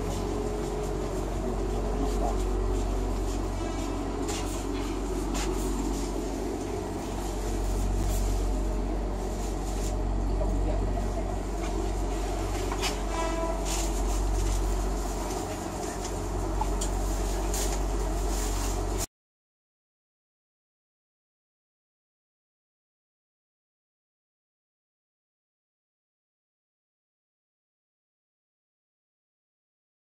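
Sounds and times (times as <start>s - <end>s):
low hum inside train coach: 0.0s - 19.1s
horn-like tone: 12.8s - 14.3s.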